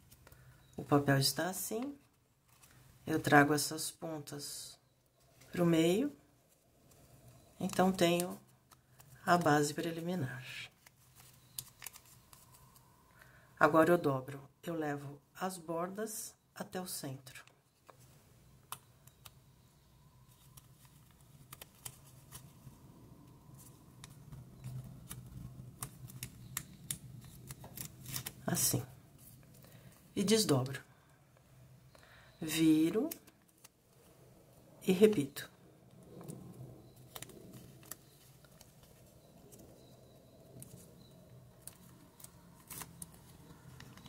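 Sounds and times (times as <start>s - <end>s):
paper crackling as folded: 6.5s - 13.0s, 20.2s - 30.0s, 32.9s - 34.1s, 36.0s - 44.0s.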